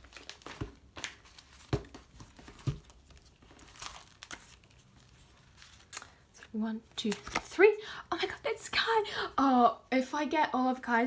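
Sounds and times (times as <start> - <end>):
plastic and paper crinkling: 0.0 - 7.7.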